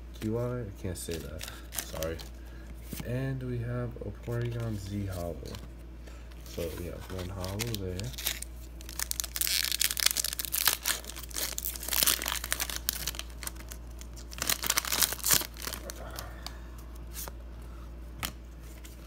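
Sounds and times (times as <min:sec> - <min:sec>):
foil wrapper tearing and crinkling: 0:01.1 - 0:02.3, 0:06.5 - 0:16.5.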